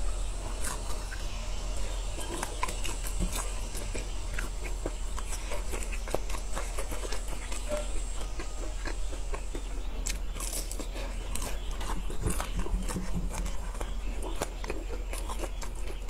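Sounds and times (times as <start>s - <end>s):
chewing with mouth clicks: 0.1s - 16.0s.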